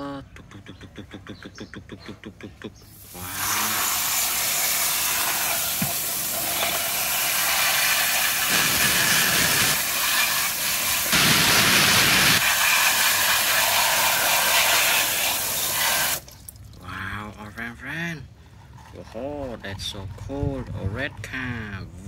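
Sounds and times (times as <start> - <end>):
hose spraying water on plastic toys: 2.9 - 16.5.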